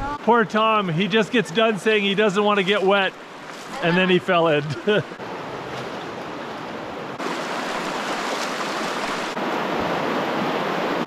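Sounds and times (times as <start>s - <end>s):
shallow river rushing: 0.0s - 11.0s
water splashing around wading legs: 5.4s - 9.4s.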